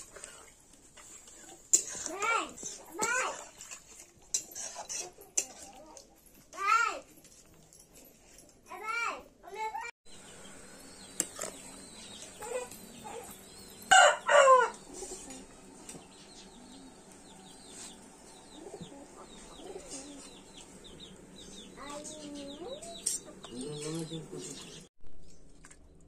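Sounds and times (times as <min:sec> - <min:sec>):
chickens clucking and chirping: 0:10.2 - 0:24.9
chickens squawking: 0:12.0 - 0:15.5.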